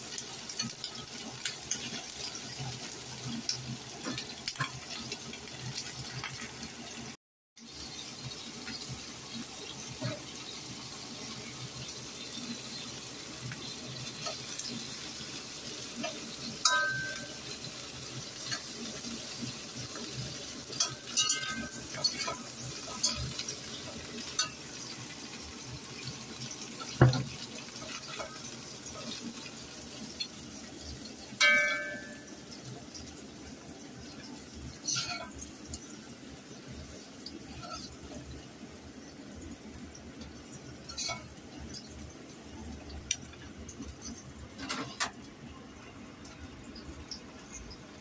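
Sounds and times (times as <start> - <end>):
shrimp sizzling in oil: 0.0 - 48.0
spatula knocking a wok: 16.6 - 17.5.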